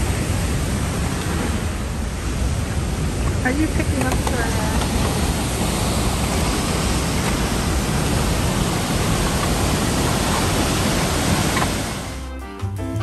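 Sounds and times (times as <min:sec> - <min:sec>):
waterfall rushing: 0:00.0 - 0:12.3.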